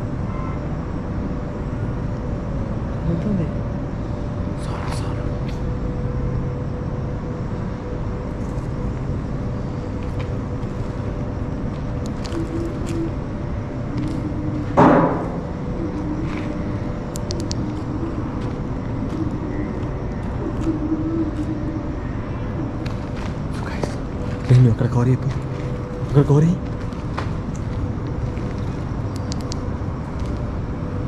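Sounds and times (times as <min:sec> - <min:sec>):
faint constant hum: 0:00.0 - 0:31.0
loud knock: 0:14.8 - 0:15.4.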